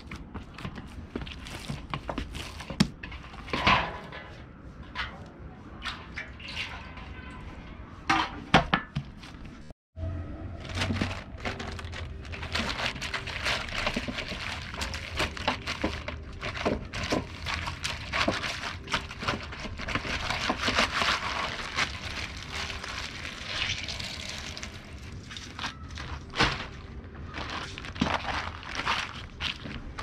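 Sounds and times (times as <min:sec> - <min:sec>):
water sloshing in metal basin: 0:05.8 - 0:08.4
water streaming from wrung cloth: 0:22.9 - 0:25.7.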